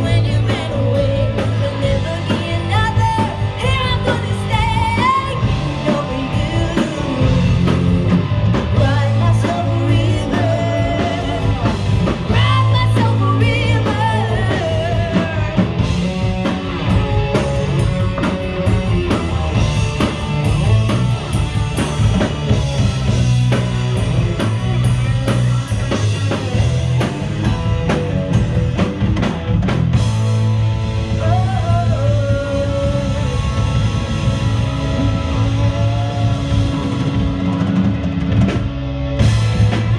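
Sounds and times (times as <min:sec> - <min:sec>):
woman singing lead: 0:00.0 - 0:08.0, 0:08.6 - 0:15.9, 0:31.0 - 0:37.2
live rock band: 0:00.0 - 0:39.9.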